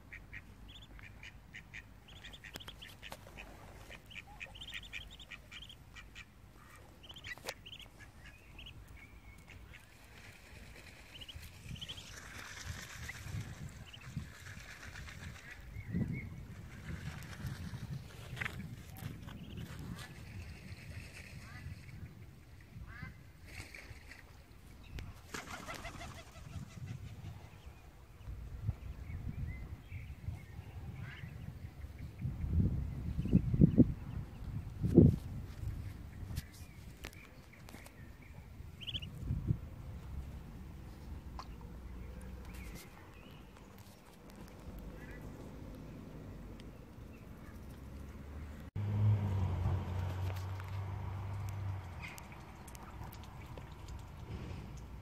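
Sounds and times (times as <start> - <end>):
ducks calling: 0.1 - 10.0
wings flapping: 10.0 - 15.6, 25.2 - 26.8.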